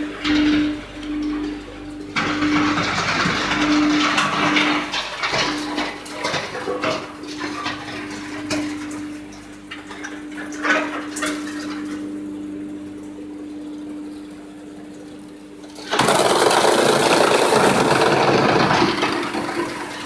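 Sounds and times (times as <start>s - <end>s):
wood being crushed grinding: 0.0s - 12.4s, 15.6s - 20.0s
wood chipper humming: 0.0s - 20.0s
pallets knocking on conveyor: 2.1s - 8.7s.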